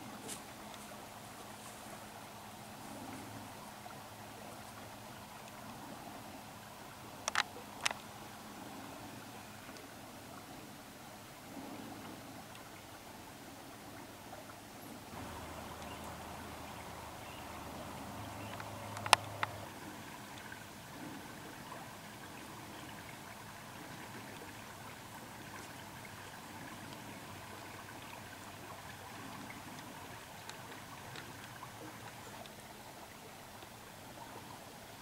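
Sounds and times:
dry cornstalks rustling: 0.2s - 2.1s
sharp clicks: 18.5s - 19.6s.

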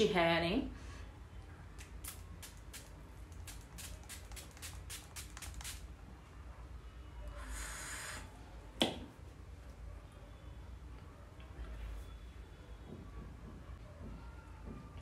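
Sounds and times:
spray bottle hissing burst: 2.4s - 5.9s, 7.4s - 8.3s.

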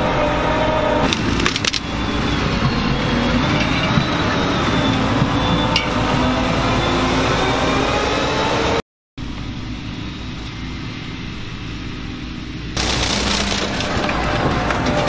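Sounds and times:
harvester machinery running: 0.0s - 15.0s
sharp cracks: 1.0s - 2.0s, 12.8s - 15.0s
beets clattering: 1.1s - 1.9s, 12.8s - 15.0s.

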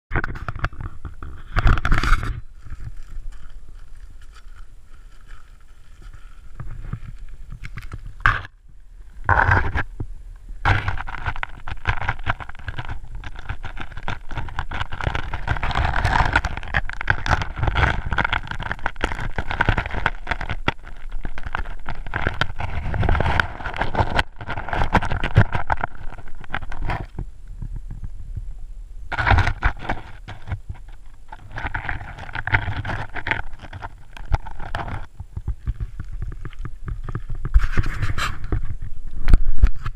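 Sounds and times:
underwater rumble and hiss: 0.5s - 14.4s, 25.5s - 37.6s
pebbles clicking and knocking: 9.2s - 9.9s, 10.6s - 28.1s, 29.1s - 39.9s.

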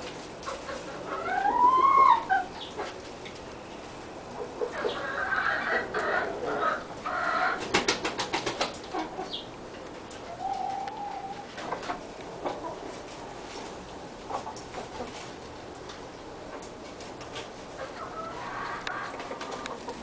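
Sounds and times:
hens clucking: 0.4s - 3.0s, 4.3s - 9.5s, 10.1s - 15.3s, 17.7s - 20.0s.

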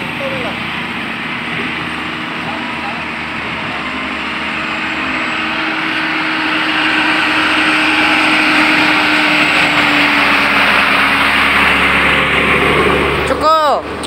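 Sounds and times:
diesel truck engine running: 0.0s - 14.0s.

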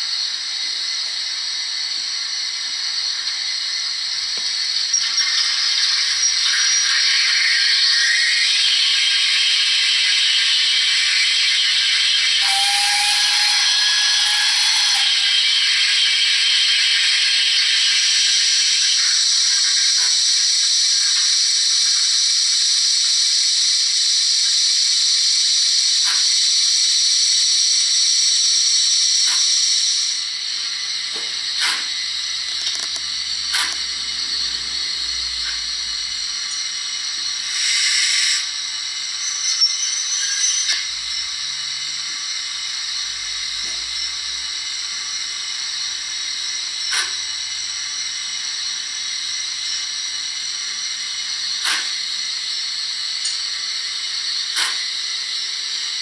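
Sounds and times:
loud steady steam hiss: 0.0s - 56.0s
short whistle: 12.1s - 15.6s.

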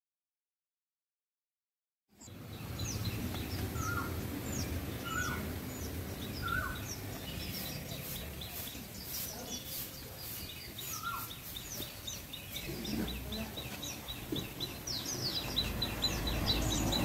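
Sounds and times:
low outdoor rumble: 2.2s - 8.6s
small high bird chirps: 2.2s - 17.0s.

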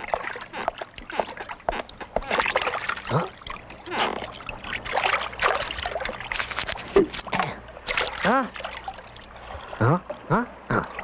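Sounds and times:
cartoon splashing and rustling: 0.0s - 9.8s
vocal grunt rising and falling: 9.8s - 11.0s.

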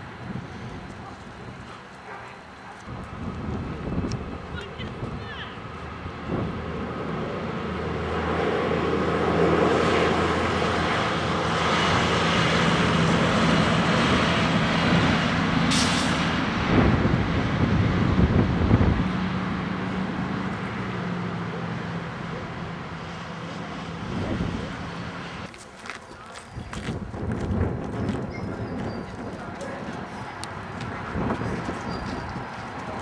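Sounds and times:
passing engine drone: 5.6s - 25.5s
low rumbling bumps: 26.8s - 33.0s.

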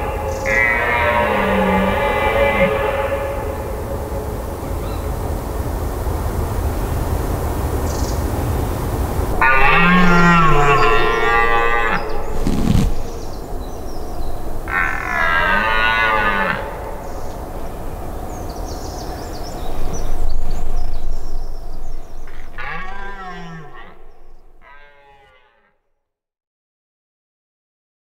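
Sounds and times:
red deer stag roaring: 0.5s - 3.2s, 9.3s - 13.3s, 14.6s - 17.1s, 22.3s - 25.5s.

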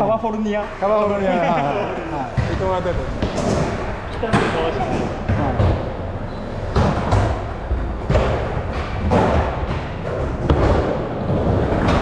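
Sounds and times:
skateboard wheels rumbling on wood: 2.6s - 12.0s
skateboard thuds and clacks: 6.6s - 12.0s.

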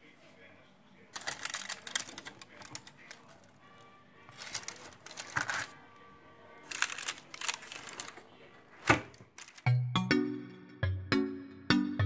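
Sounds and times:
soft background music: 0.0s - 12.0s
baking paper crinkling: 1.1s - 3.6s, 4.2s - 5.8s, 6.6s - 9.7s.

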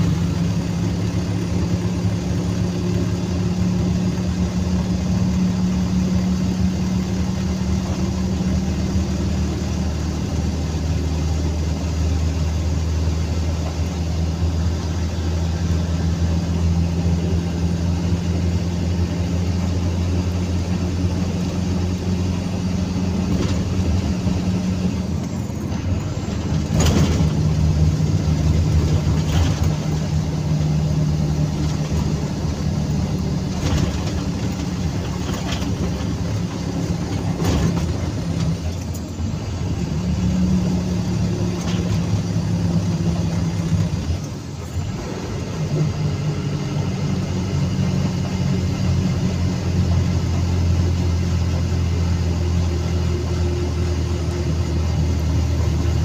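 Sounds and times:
road noise: 0.0s - 56.0s
truck engine running: 0.0s - 56.0s
knocks and rattles: 25.6s - 27.6s, 33.5s - 38.9s.

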